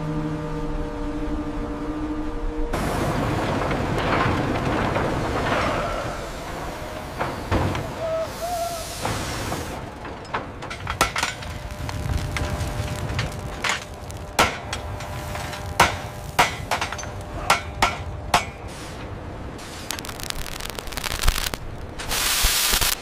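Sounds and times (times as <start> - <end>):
hammers striking iron on anvils: 14.4 - 18.7.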